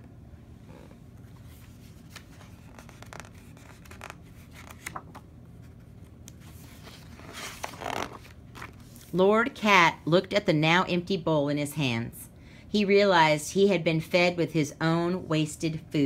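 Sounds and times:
page turning swish: 0.8 - 5.2, 6.2 - 9.2
paper rustling: 1.2 - 9.2.

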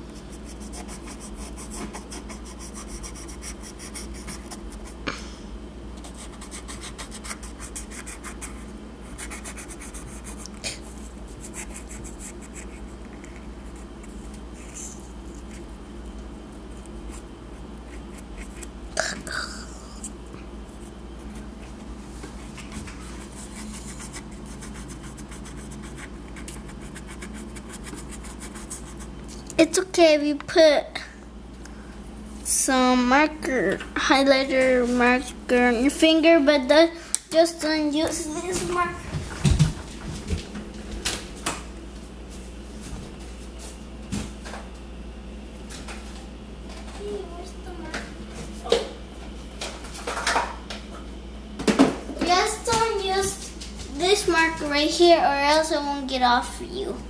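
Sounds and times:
marker scribbling on shell: 0.1 - 5.0, 6.0 - 15.7, 17.1 - 18.7, 22.4 - 29.1.

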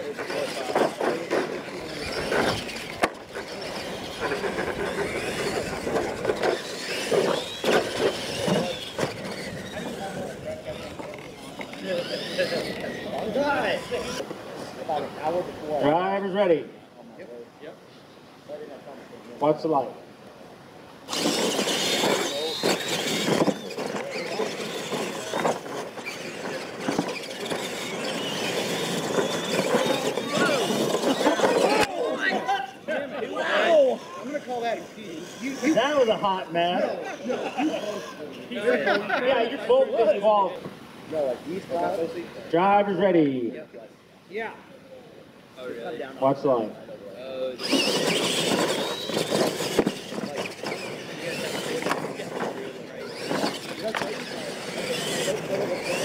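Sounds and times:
bumps and thuds on dirt track: 0.0 - 14.2, 21.1 - 32.0, 47.6 - 56.0
electric drivetrains whining: 0.0 - 14.3, 21.1 - 38.3, 47.5 - 56.0.

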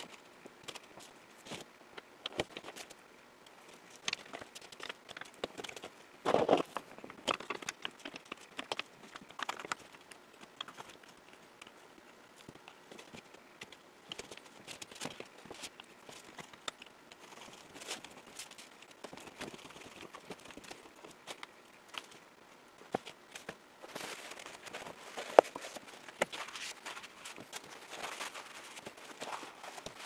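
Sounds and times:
plastic blocks clicking on wood: 4.0 - 11.8.

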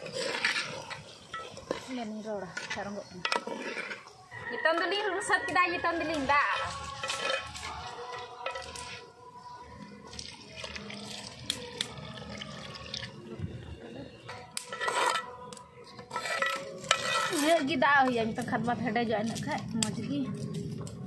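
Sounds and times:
spoon scraping clay pot: 0.0 - 5.0, 6.1 - 9.1, 14.4 - 18.3
liquid pouring and splashing: 10.1 - 13.2.

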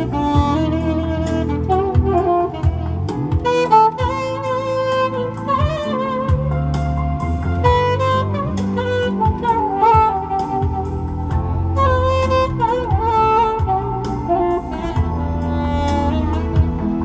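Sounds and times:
alto saxophone melody: 0.0 - 17.0
bass line: 0.0 - 17.0
steady drum beat: 0.0 - 17.0.

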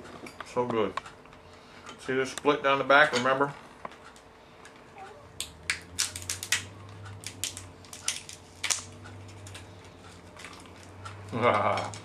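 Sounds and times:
lobster shell cracking: 5.4 - 8.9.

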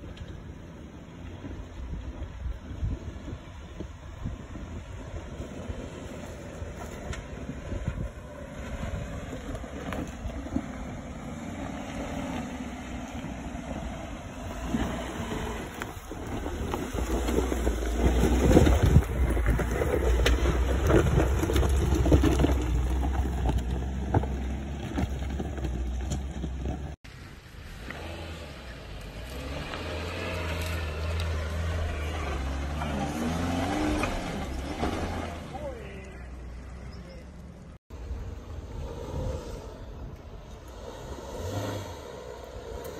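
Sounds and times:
engine running at low revs: 0.0 - 42.9
tyres crunching over stones: 8.9 - 27.0.

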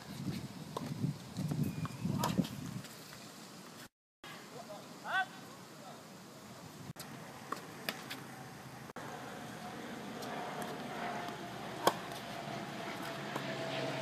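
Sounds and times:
distant engine drone: 7.1 - 14.0
tennis racket hitting ball: 11.8 - 12.3.

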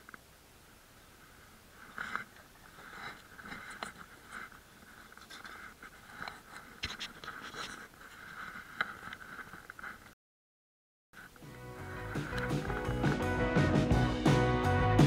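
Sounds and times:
faint steady hiss: 0.0 - 10.1
handling noise: 11.2 - 13.8.

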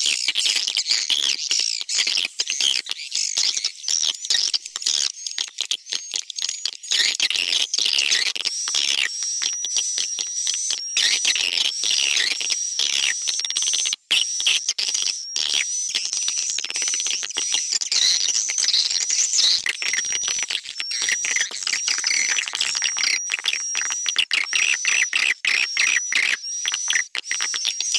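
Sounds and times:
swiftlet twittering and chirping: 9.7 - 27.9.

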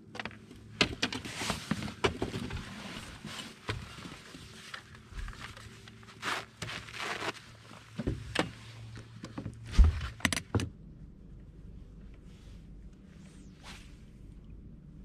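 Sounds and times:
faint steady hum: 0.0 - 15.0
clothing rustle: 1.0 - 10.2, 12.2 - 14.2.

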